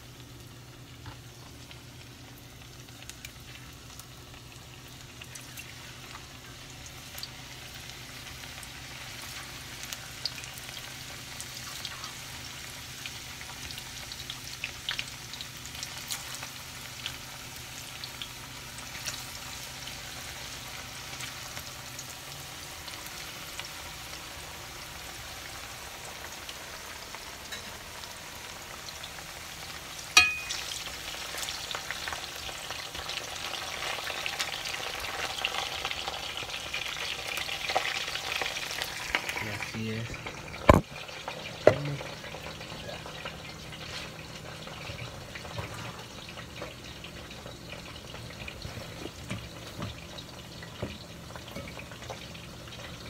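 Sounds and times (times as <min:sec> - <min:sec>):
oil sizzling with crackling pops: 0:00.0 - 0:53.0
low steady hum: 0:24.0 - 0:31.2.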